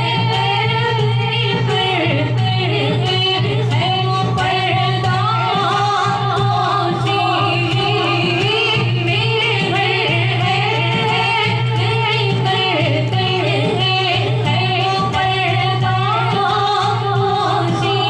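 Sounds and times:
woman singing over loudspeaker: 0.0 - 18.0.

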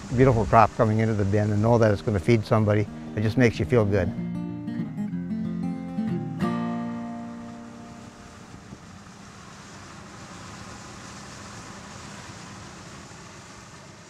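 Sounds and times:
strummed guitar chord: 2.0 - 8.6
combine harvester running: 6.4 - 14.0.

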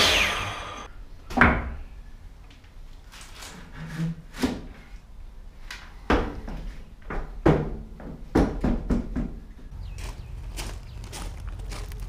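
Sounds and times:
footsteps: 9.8 - 12.0.

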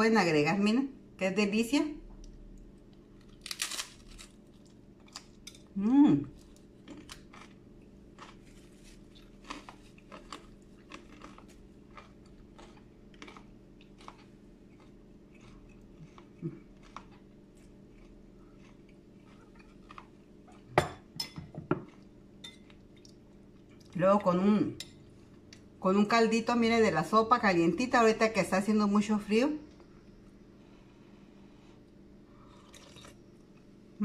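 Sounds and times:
crunchy chewing: 2.2 - 5.7, 6.3 - 20.8, 21.8 - 24.0
dishes clinking: 20.8 - 22.6.

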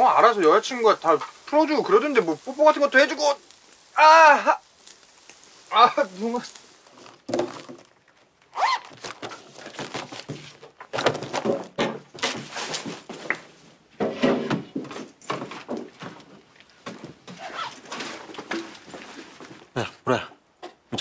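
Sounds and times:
rustles and soft thumps: 6.5 - 19.8
books closing: 8.6 - 13.5.

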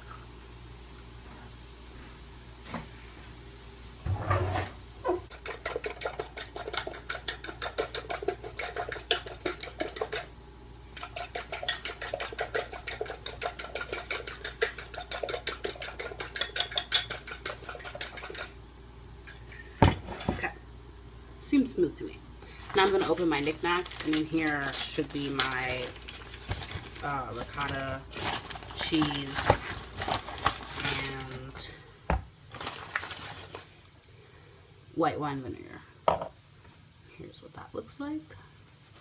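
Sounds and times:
fork whisking eggs in a bowl: 5.3 - 10.3, 10.9 - 18.6.

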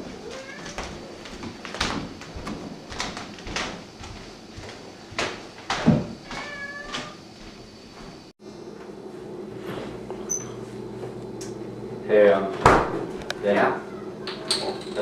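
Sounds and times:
knocks and footfalls: 0.1 - 8.3.

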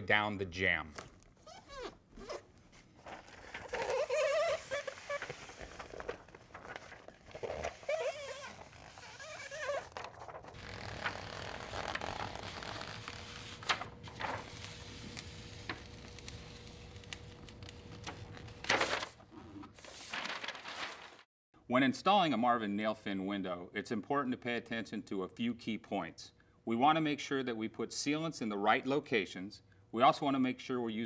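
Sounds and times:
tape crinkling and ripping: 1.0 - 19.2, 19.8 - 21.2.

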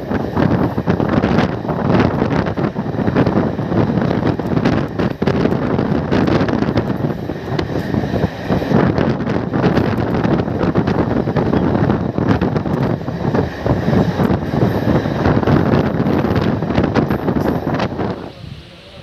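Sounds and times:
train running at speed: 0.0 - 19.0
wind buffeting microphone: 0.0 - 19.0.

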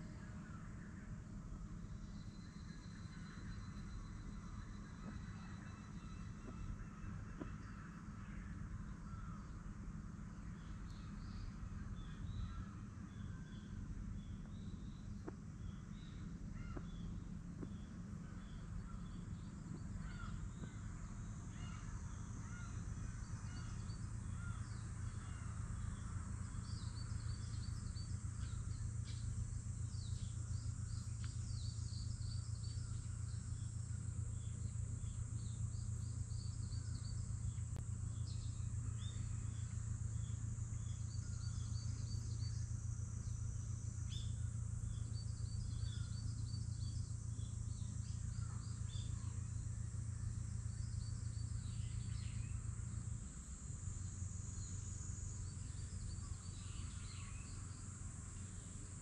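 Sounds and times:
steady low rumble: 0.0 - 59.0
birds calling: 14.3 - 42.8.

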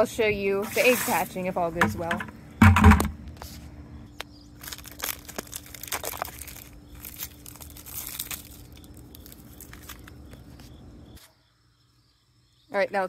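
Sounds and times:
plastic wrap crinkling and tearing: 4.6 - 10.6.

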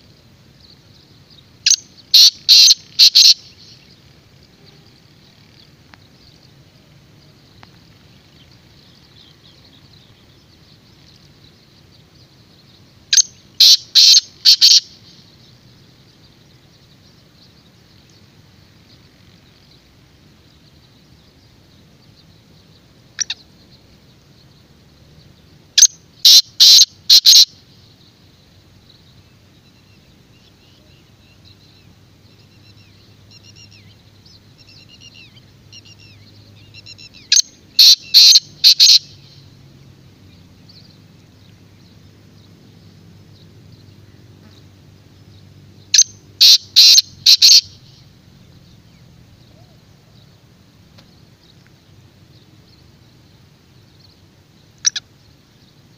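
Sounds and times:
small birds twittering: 0.0 - 55.9
bird grating call: 1.7 - 3.4, 13.2 - 14.8, 26.2 - 27.5, 37.3 - 39.1, 46.0 - 47.8, 54.8 - 55.0.

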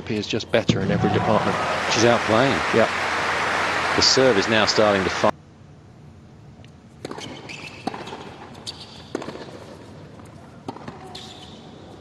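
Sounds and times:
tennis ball struck and bouncing: 9.1 - 9.6.

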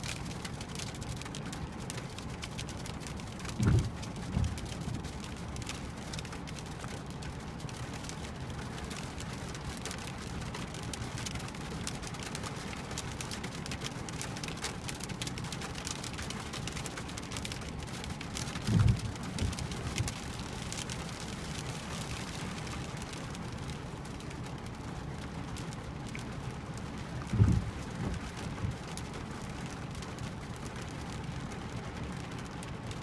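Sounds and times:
hail and rain on car windshield: 0.0 - 33.0
low thump: 3.6 - 4.6.

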